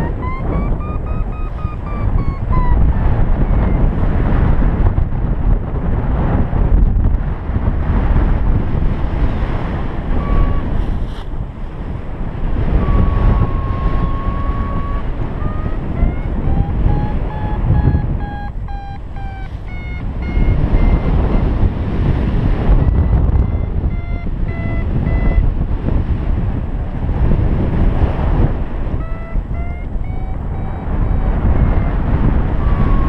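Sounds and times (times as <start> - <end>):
variometer tone and beeps: 0.0 - 4.1, 10.2 - 10.7, 12.6 - 21.8, 22.6 - 25.6, 28.9 - 33.0
wind buffeting microphone: 0.0 - 33.0.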